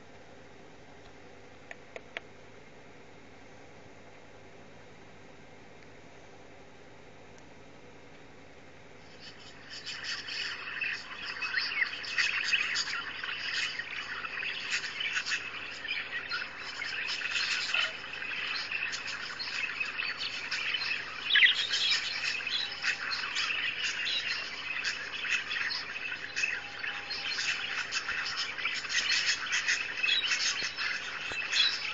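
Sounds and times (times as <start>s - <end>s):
budgerigars chattering: 9.1s - 31.9s.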